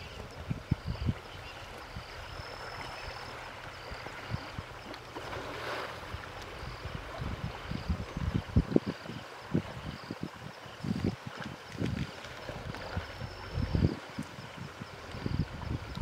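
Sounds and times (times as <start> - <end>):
faint high chirps: 0.0 - 9.2
flowing river water: 0.0 - 16.0
water sloshing and splashing: 0.0 - 16.0
wind thumps on microphone: 6.0 - 16.0.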